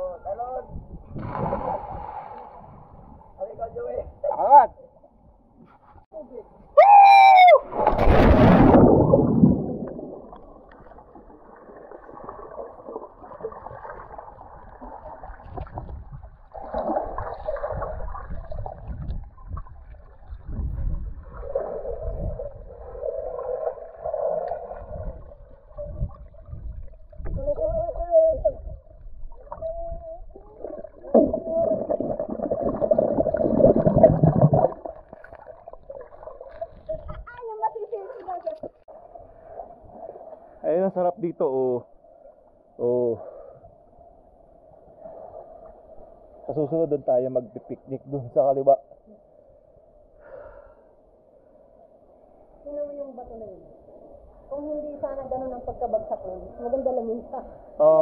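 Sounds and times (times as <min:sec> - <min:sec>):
splash into water: 0:07.6 - 0:19.1
underwater bubbling and gurgling: 0:08.0 - 0:27.8, 0:28.6 - 0:40.6.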